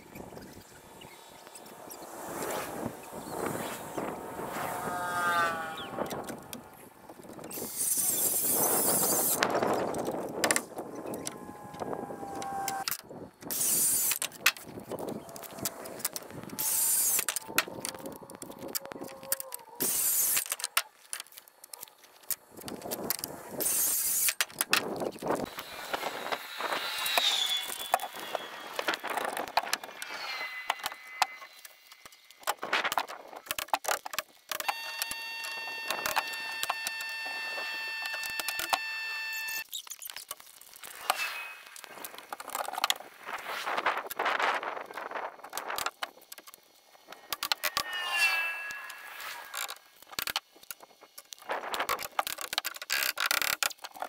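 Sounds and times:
circular saw cutting wood: 0:01.1 - 0:06.8, 0:07.5 - 0:20.8, 0:23.5 - 0:24.5, 0:25.4 - 0:31.9, 0:34.6 - 0:39.6, 0:47.3 - 0:49.9.

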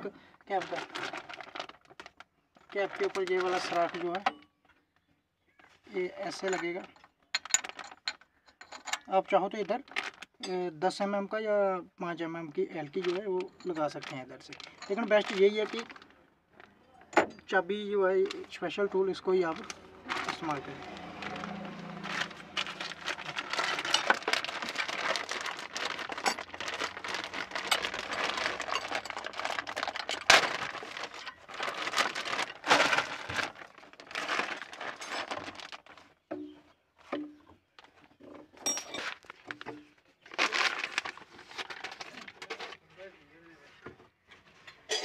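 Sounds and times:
rustling and scraping: 0:12.9 - 0:45.0.

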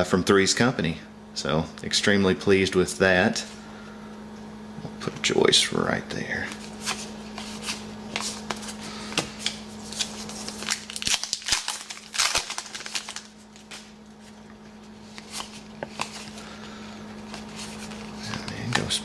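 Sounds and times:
cards rustling in hands: 0:06.4 - 0:19.0
foil wrapper tearing and crinkling: 0:09.4 - 0:14.0.

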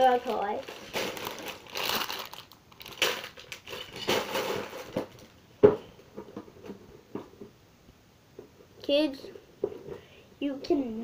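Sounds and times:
rustling handling noise: 0:00.0 - 0:07.6.

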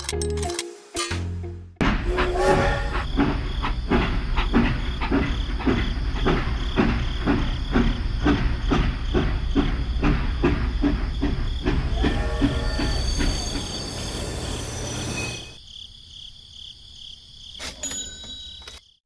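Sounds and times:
rhythmic steam chuffing: 0:01.9 - 0:15.6
toy train whistle toot: 0:11.9 - 0:14.2.

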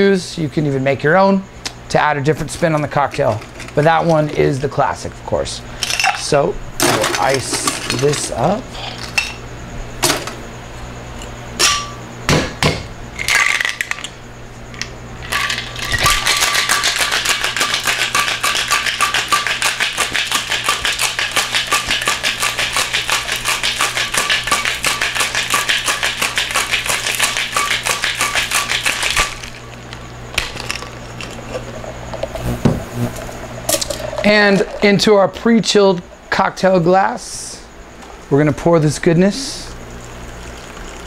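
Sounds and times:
cocktail shaker rattling ice: 0:15.2 - 0:29.6.

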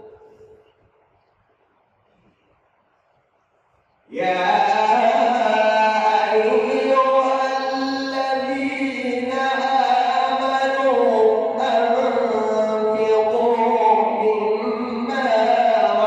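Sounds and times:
man chanting melodically: 0:04.1 - 0:16.0.

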